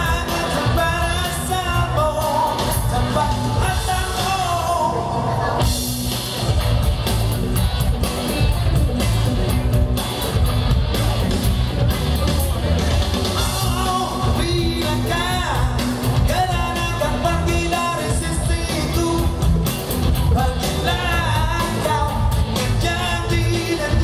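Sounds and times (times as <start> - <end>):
person singing: 0.0 - 5.3, 13.4 - 19.6, 20.3 - 24.0
live band playing pop-rock: 0.0 - 24.0.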